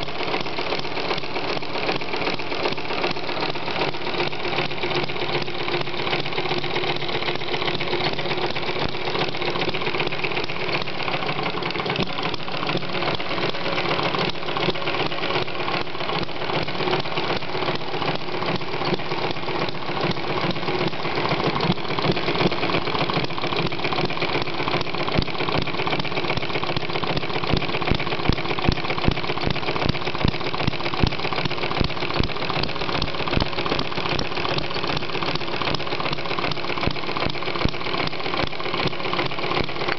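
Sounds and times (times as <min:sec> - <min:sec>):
model engine clattering: 0:00.0 - 0:39.9.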